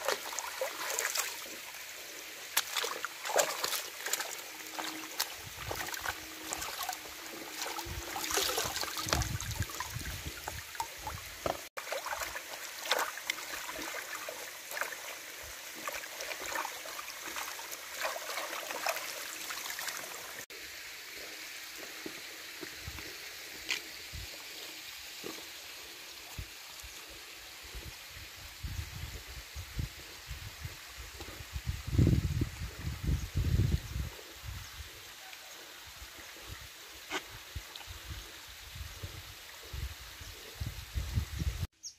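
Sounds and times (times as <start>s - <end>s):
water splashing and dripping: 0.0s - 28.4s
steady water sound: 0.0s - 41.7s.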